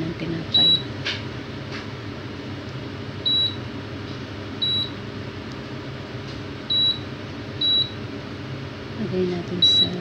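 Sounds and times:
steady low hum: 0:00.0 - 0:10.0
oven control panel beeps: 0:00.5 - 0:00.9, 0:03.2 - 0:03.7, 0:04.6 - 0:05.0, 0:06.7 - 0:08.0, 0:09.5 - 0:10.0.

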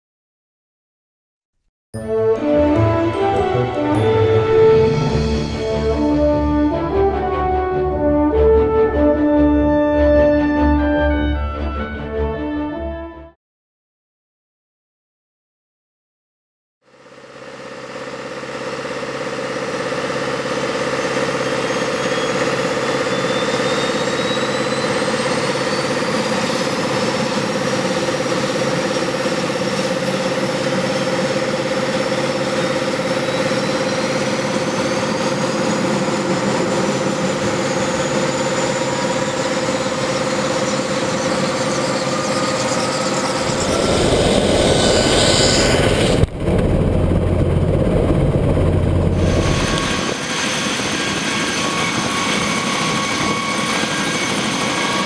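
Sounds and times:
helicopter turbines spooling up: 0:02.3 - 0:09.8, 0:16.9 - 0:55.0.

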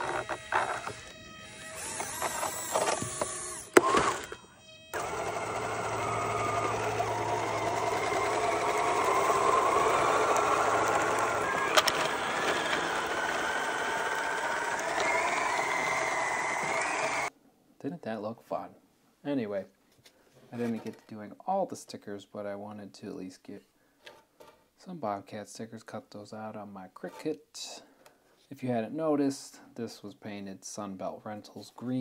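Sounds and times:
electric motors whining: 0:00.0 - 0:17.3.

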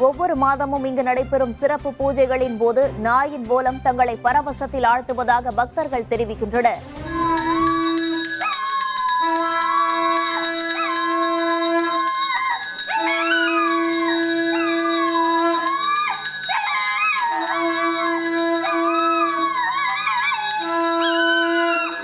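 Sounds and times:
long steady held notes: 0:06.9 - 0:22.0
dog howling: 0:07.1 - 0:22.0.

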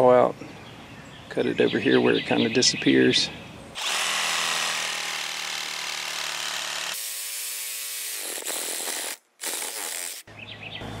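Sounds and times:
reciprocating saw cutting pipe: 0:03.8 - 0:10.3.

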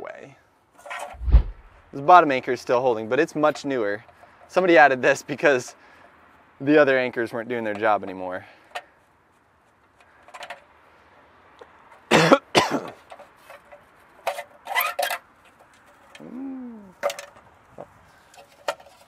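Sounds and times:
metal box scraping and rattling: 0:00.8 - 0:01.7
short rising and falling tone: 0:01.1 - 0:01.7.

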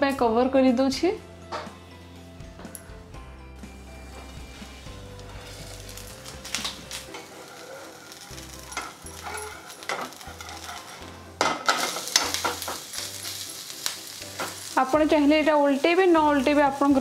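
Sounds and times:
food sizzling in oil: 0:03.6 - 0:17.0
metal spatula scraping pan: 0:07.1 - 0:12.9.

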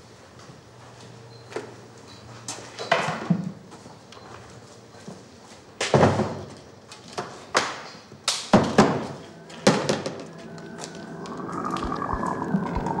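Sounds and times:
steady hum: 0:08.6 - 0:13.0.

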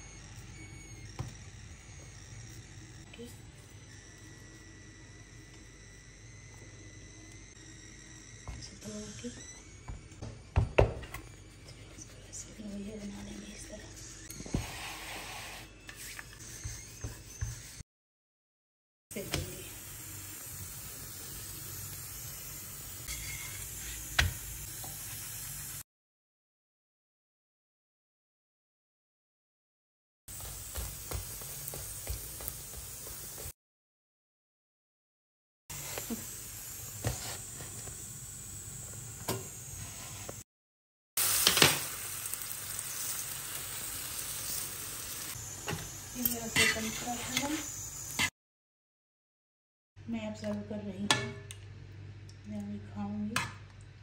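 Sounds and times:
flatbread sizzling in a frying pan: 0:19.2 - 0:25.8, 0:30.3 - 0:33.6, 0:35.7 - 0:40.4, 0:41.2 - 0:48.3.

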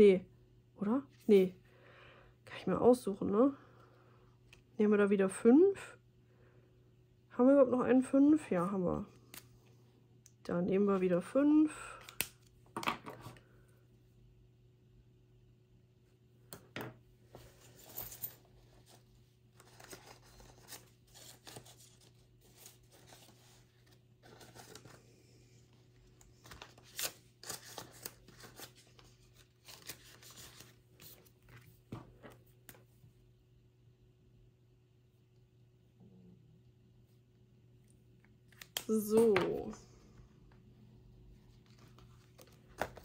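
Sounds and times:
paper and plastic rustling: 0:17.4 - 0:25.1.

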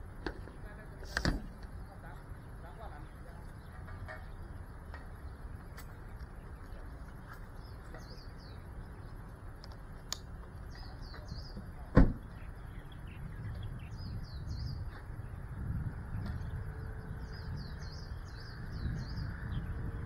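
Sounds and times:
birds chirping: 0:00.0 - 0:20.0
low steady rumble: 0:00.0 - 0:20.0
loud low thump: 0:11.9 - 0:12.3.

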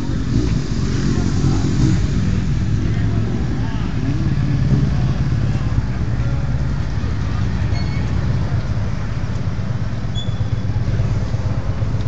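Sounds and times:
motorcycle engine idling: 0:02.4 - 0:12.0.

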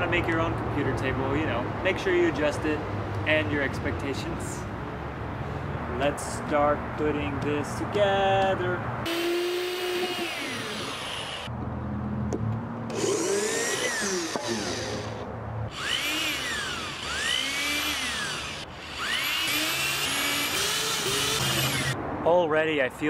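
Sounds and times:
electric drill boring into wood: 0:09.1 - 0:11.5, 0:12.9 - 0:22.0.

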